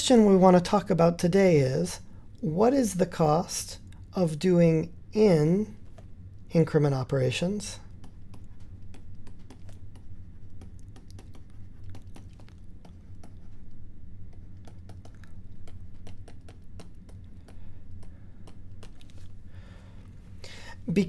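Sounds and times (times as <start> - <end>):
steady low hum: 0.0 - 21.0
stylus tapping on tablet screen: 7.9 - 13.7, 14.3 - 19.2.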